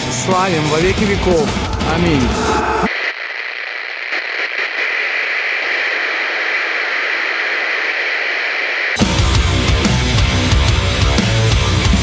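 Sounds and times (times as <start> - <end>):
music: 0.0 - 2.9, 9.0 - 12.0
tv static hiss: 0.3 - 9.7.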